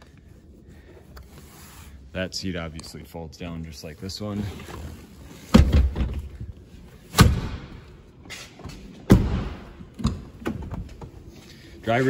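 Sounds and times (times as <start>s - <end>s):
car doors and seat thumping: 9.0s - 11.0s.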